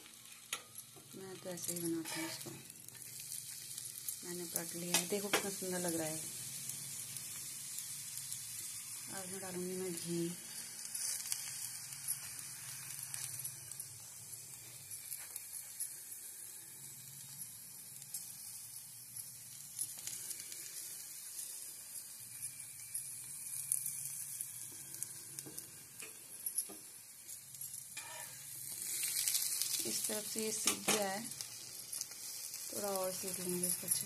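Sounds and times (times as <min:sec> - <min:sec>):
flatbread sizzling in oil: 0:00.0 - 0:34.0
steel spoon scraping and tapping: 0:01.7 - 0:02.6, 0:26.0 - 0:32.2.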